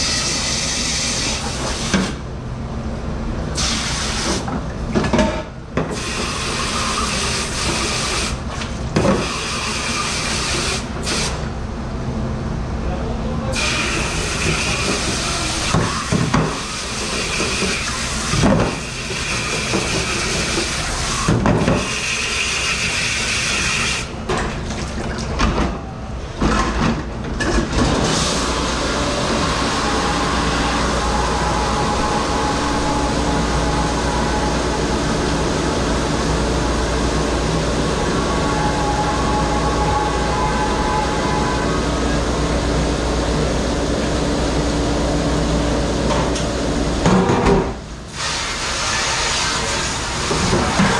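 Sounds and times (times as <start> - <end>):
faint machine hum: 0.0 - 50.9
spray hose water hissing on dishes: 9.2 - 11.3, 13.6 - 24.1, 48.1 - 50.9.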